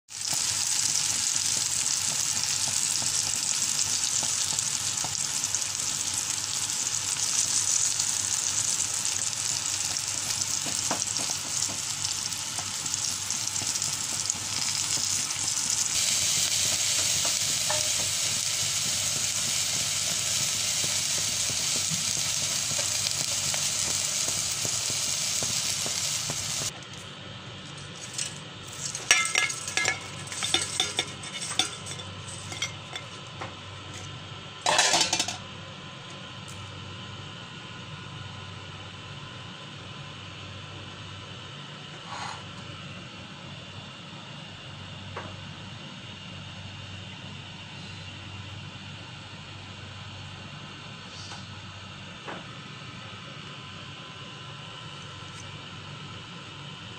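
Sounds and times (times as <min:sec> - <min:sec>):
fish roe sizzling in oil: 0:00.1 - 0:26.7, 0:27.9 - 0:33.2.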